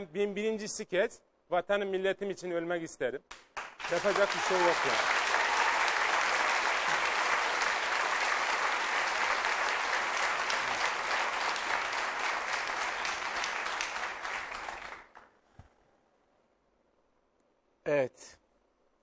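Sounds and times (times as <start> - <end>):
audience applauding: 3.6 - 15.3.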